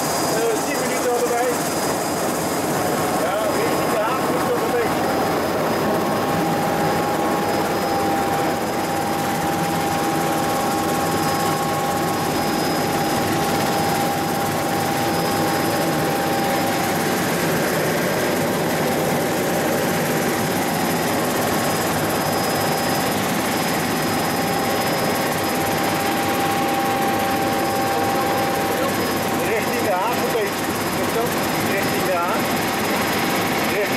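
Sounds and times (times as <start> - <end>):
constant high whine: 0.0 - 33.9
helicopter engine and rotor: 0.0 - 33.9.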